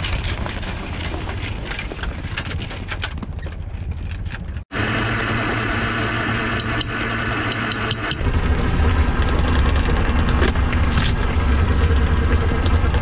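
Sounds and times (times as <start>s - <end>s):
boat engine running: 4.7s - 13.0s.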